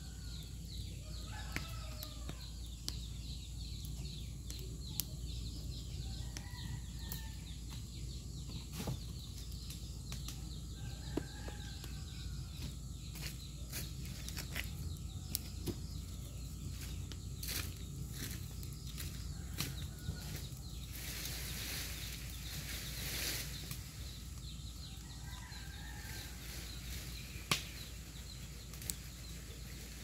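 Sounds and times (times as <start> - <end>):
fire crackling and popping: 0.1 - 30.0.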